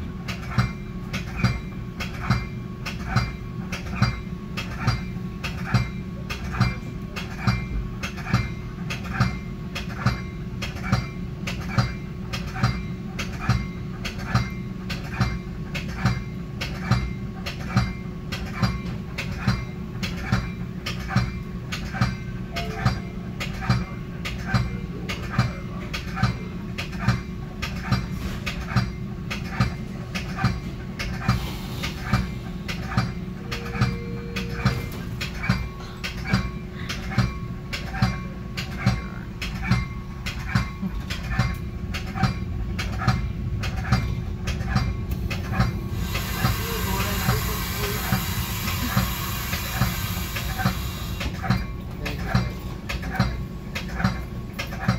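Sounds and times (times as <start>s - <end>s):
steady hum: 0.0s - 54.9s
train rumbling: 0.0s - 54.9s
train bell ringing: 22.5s - 23.3s, 33.4s - 35.9s.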